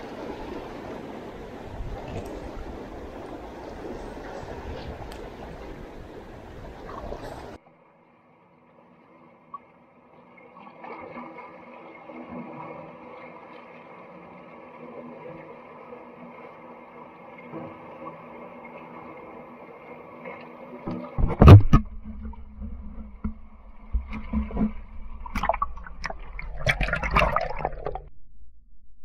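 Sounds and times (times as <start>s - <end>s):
seawater washing among rocks: 0.0s - 7.6s, 21.2s - 28.0s.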